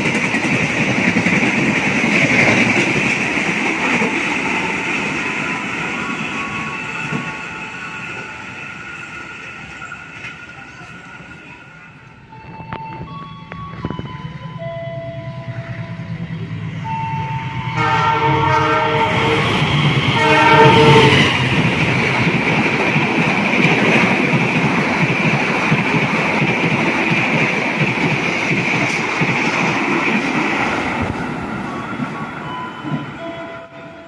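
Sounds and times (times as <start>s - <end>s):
train wheels rushing on rails: 0.0s - 34.0s
locomotive horn blasts: 16.9s - 21.4s, 33.2s - 34.0s.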